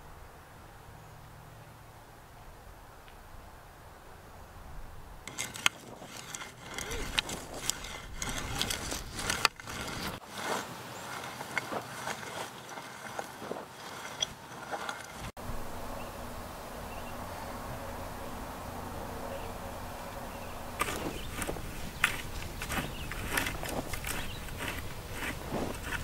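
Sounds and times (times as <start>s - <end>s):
hoe scraping stony soil: 5.2s - 15.4s, 20.3s - 26.0s
outdoor hiss: 15.3s - 22.6s
faint low hum: 15.4s - 26.0s.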